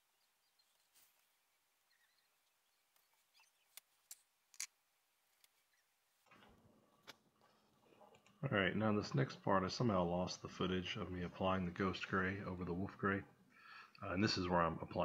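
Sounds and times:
faint rustling: 0.0 - 8.5.

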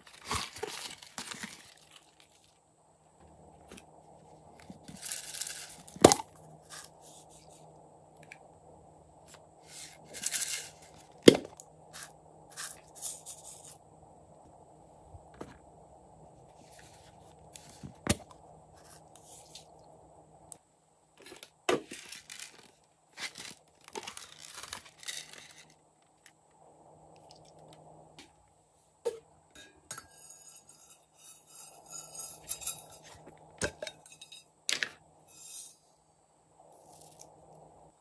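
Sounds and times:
rustling handling noise: 0.0 - 7.8, 9.2 - 13.8, 16.3 - 19.8, 21.2 - 26.4.

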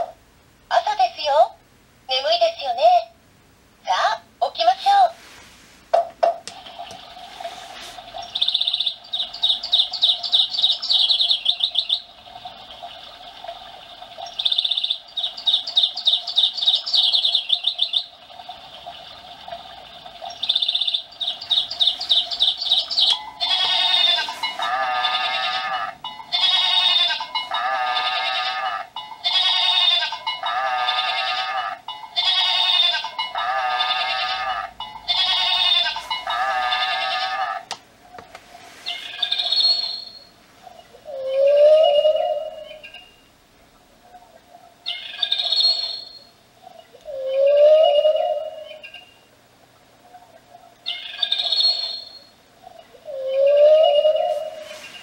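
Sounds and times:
faint steady background: 0.0 - 55.0
trilling birdsong from speaker: 8.2 - 12.1, 14.4 - 18.1, 20.3 - 25.1
bleating goat call: 23.4 - 37.7.

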